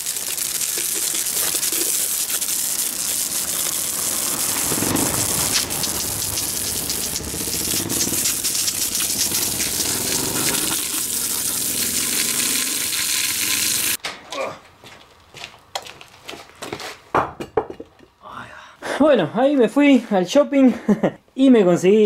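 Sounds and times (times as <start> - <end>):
hose water spraying on metal: 0.0 - 14.0
water splashing on concrete: 0.0 - 14.0.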